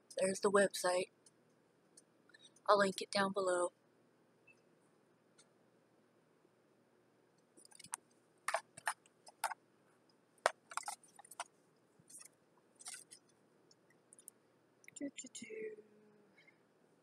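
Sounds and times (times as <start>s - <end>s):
paper and packaging crinkling: 10.5s - 11.5s, 12.1s - 13.2s.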